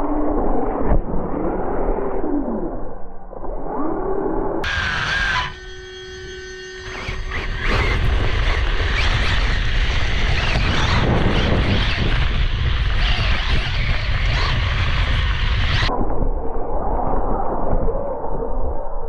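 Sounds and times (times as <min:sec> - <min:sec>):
wind and ground noise: 0:00.0 - 0:19.0
heavy low rumble: 0:04.6 - 0:18.1.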